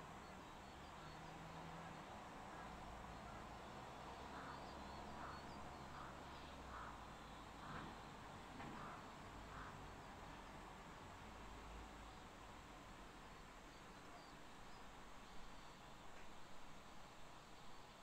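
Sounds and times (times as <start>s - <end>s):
outdoor background hiss: 0.0s - 18.0s
crows cawing: 4.3s - 7.9s.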